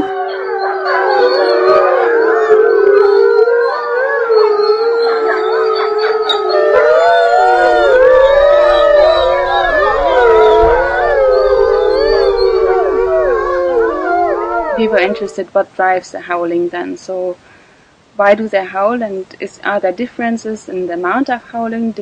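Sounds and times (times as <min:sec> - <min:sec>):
wolves howling in chorus: 0:00.0 - 0:15.4.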